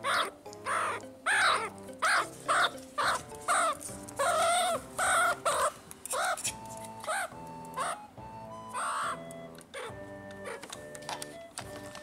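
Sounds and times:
meerkat barking alarm calls: 0:00.0 - 0:06.4, 0:07.0 - 0:08.0, 0:08.7 - 0:10.7
background music: 0:00.0 - 0:12.0.

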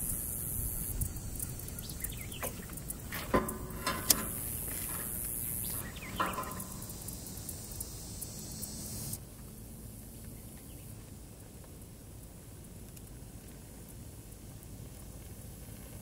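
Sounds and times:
high insect buzz: 0:00.0 - 0:09.2
light rustles: 0:01.4 - 0:07.2.

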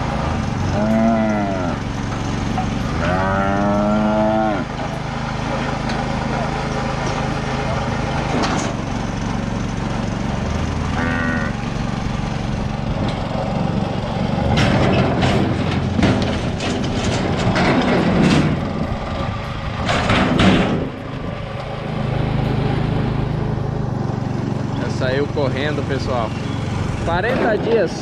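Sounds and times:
small engine running: 0:00.0 - 0:28.0
rattling clatter of metal chute: 0:01.8 - 0:04.0, 0:04.6 - 0:10.1, 0:14.3 - 0:21.6, 0:24.7 - 0:28.0.

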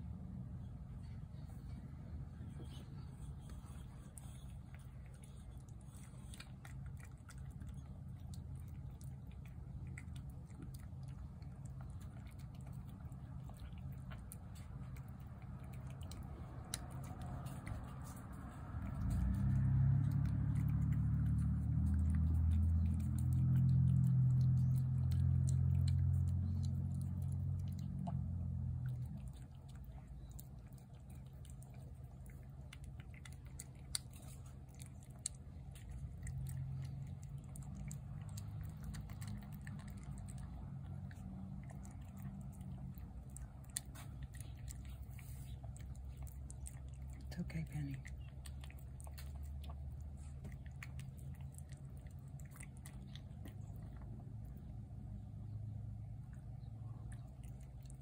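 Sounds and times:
cat chewing wet food: 0:00.0 - 0:58.0.

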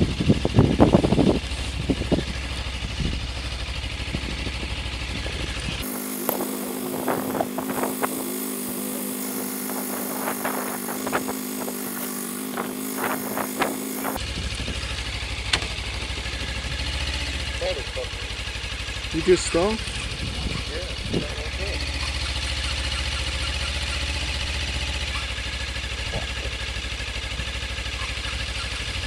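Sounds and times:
motorcycle engine idling: 0:00.0 - 0:29.0
steady hum and hiss: 0:05.8 - 0:14.2.

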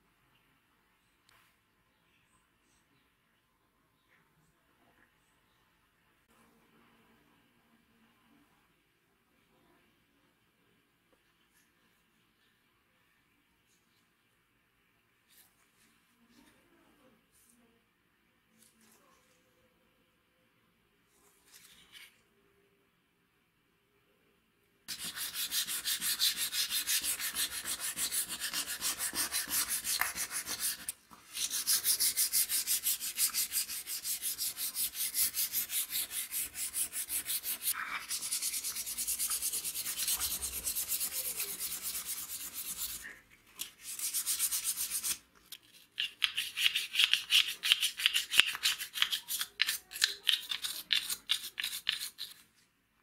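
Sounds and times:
sandpaper scrubbing metal: 0:24.9 - 0:43.0, 0:43.8 - 0:45.2.

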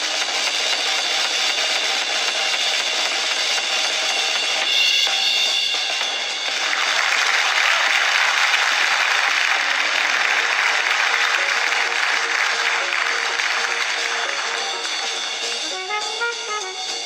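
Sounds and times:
audience applauding: 0:06.4 - 0:17.0
faint instrument notes: 0:09.7 - 0:17.0.

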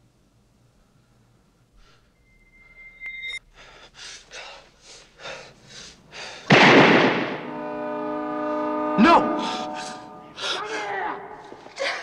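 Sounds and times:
thin high tone: 0:01.8 - 0:03.4
loud burst of sound: 0:06.5 - 0:07.8.

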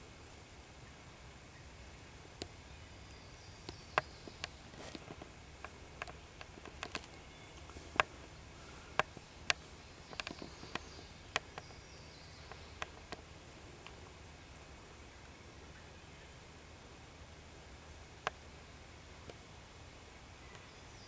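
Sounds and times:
turkeys crackling through dry leaves: 0:03.8 - 0:14.7.

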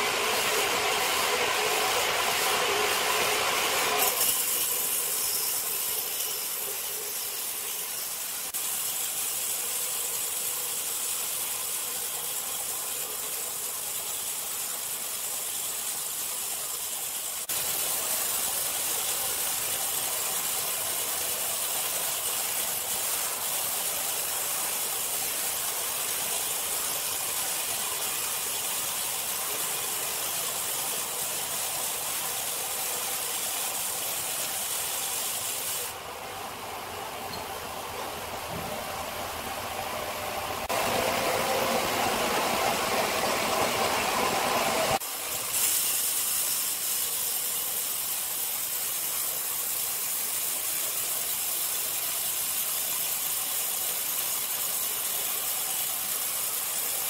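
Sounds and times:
band saw cutting through log: 0:00.0 - 0:11.2.

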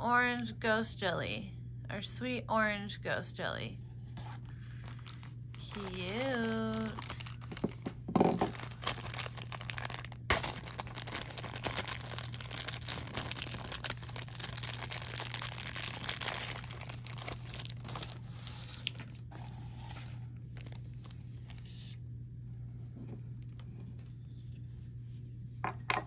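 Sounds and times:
low hum: 0:00.0 - 0:26.0
packaging crinkling and tearing: 0:04.7 - 0:22.0.

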